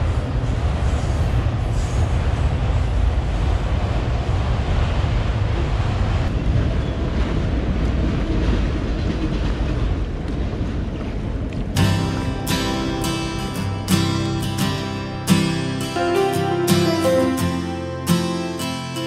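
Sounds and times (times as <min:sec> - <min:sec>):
wind buffeting microphone: 0:00.0 - 0:13.8
freight train rumbling past: 0:00.0 - 0:19.0.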